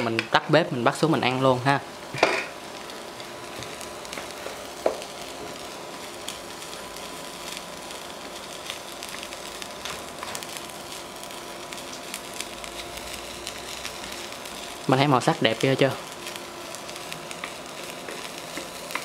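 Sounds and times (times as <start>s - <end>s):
food sizzling in a frying pan: 0.0s - 19.0s
chopsticks tapping a pan: 3.6s - 5.1s.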